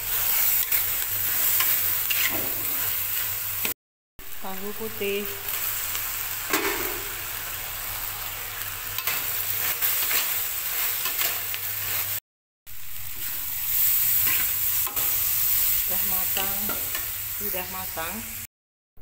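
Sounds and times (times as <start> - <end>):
metal spatula scraping wok: 0.0 - 3.3, 9.0 - 12.2, 13.2 - 17.0
food sizzling in oil: 0.0 - 18.5.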